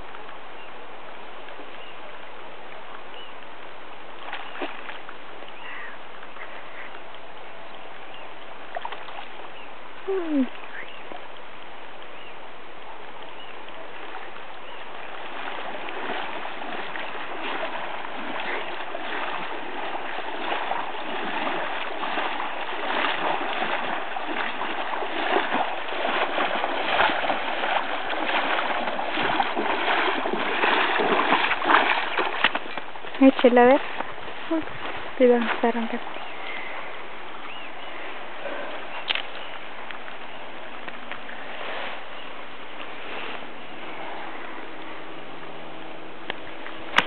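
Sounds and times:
legs wading through water: 0.0 - 47.0
river water running: 0.0 - 47.0.

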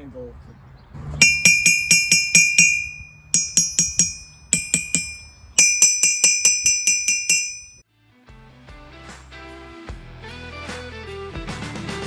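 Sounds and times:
hammer striking anvil: 1.2 - 7.8.

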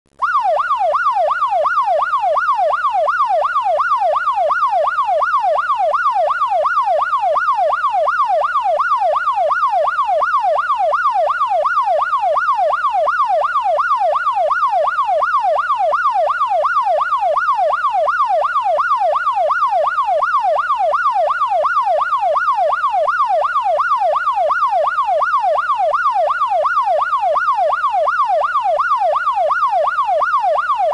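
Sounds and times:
police siren yelping: 0.2 - 30.9.

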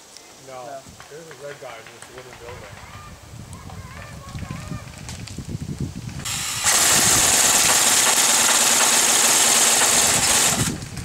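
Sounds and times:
airsoft rifle full auto burst: 6.3 - 10.9.

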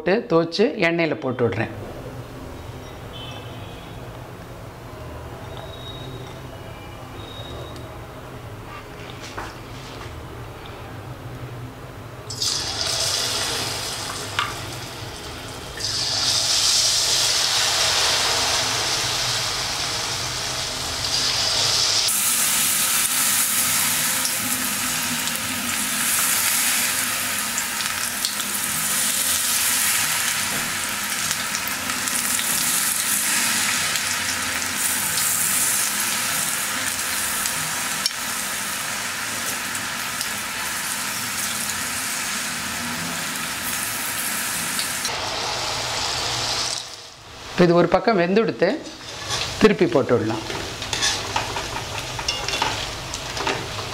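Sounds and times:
battered food sizzling in oil: 12.3 - 53.9.

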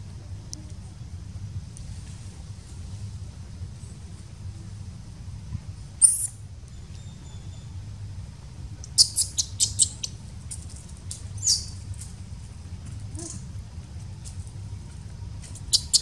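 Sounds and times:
baby monkey squeaking: 6.0 - 6.4, 8.9 - 10.2, 11.4 - 11.8, 15.6 - 16.0.

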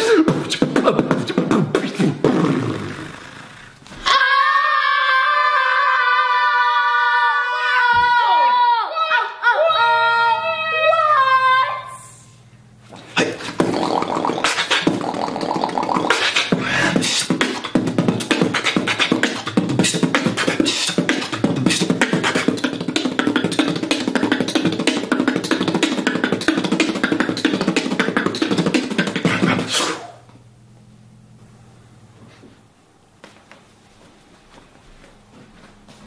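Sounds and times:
person beatboxing: 0.0 - 3.8, 13.0 - 30.2.

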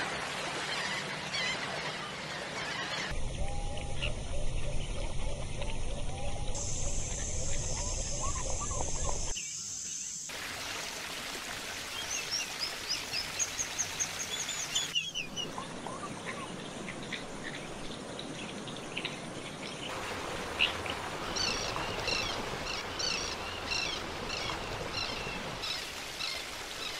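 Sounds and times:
background hiss: 6.5 - 10.8.

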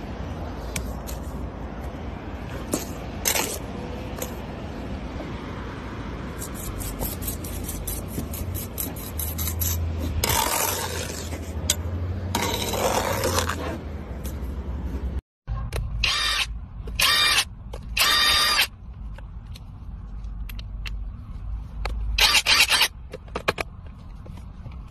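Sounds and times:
trowel scraping mortar: 2.5 - 4.4, 6.2 - 14.4.

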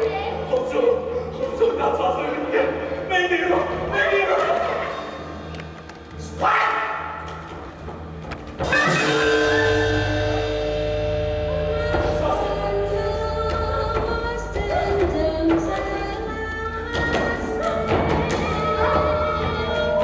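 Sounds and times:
theatre music with singing: 0.0 - 20.0
low steady drone: 9.1 - 14.2.

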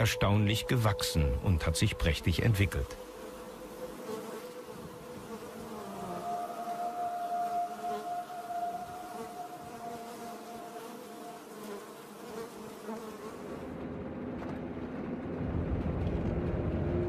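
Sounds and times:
bees buzzing: 0.0 - 13.8
car driving rumble: 13.7 - 17.0.

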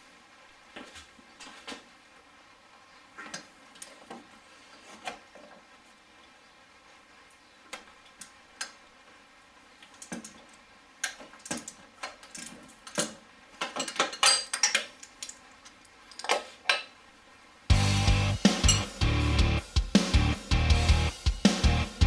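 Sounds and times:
tools clinking on metal parts: 11.0 - 15.4, 18.6 - 18.9
music: 17.7 - 22.0.

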